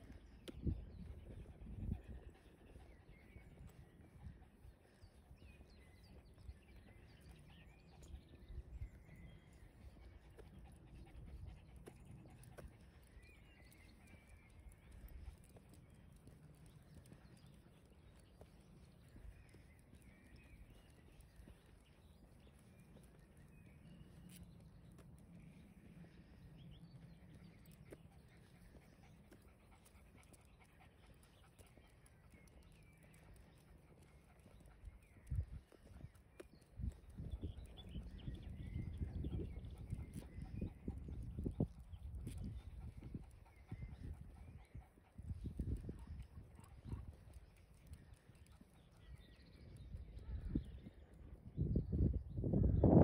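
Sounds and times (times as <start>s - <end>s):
small birds chirping: 0.0s - 52.2s
dog panting: 9.6s - 19.0s, 26.1s - 36.7s, 37.6s - 48.8s.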